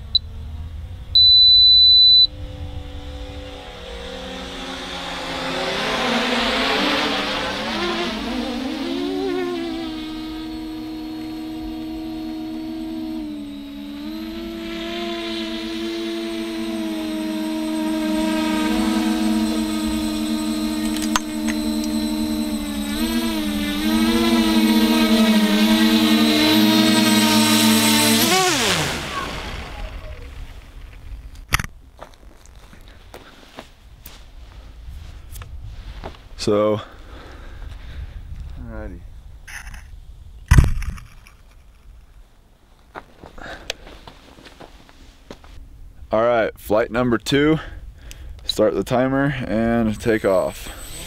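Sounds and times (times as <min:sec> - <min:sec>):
quadcopter propellers whining: 0:00.0 - 0:31.1, 0:47.3 - 0:51.0
long high beep: 0:01.2 - 0:02.3
sharp click: 0:20.8 - 0:22.0.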